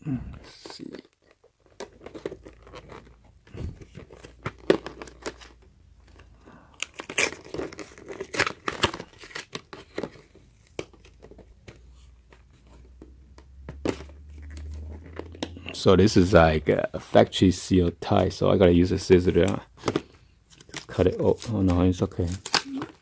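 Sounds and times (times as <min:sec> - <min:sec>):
plastic packaging crinkling: 0:00.8 - 0:11.5.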